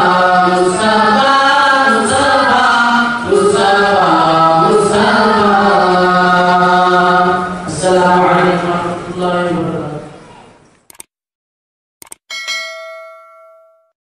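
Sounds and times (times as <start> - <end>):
young men singing through microphones: 0.0 - 9.3.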